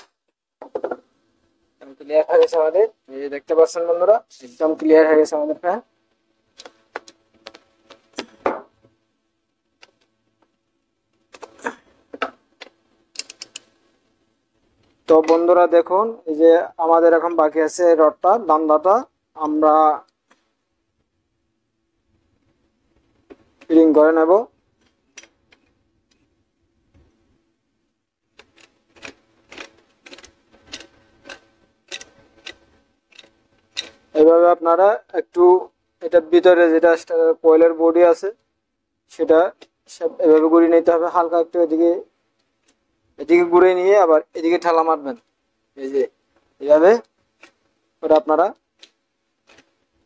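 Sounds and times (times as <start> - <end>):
metallic screwdriver clicks and taps: 28.4 - 33.9.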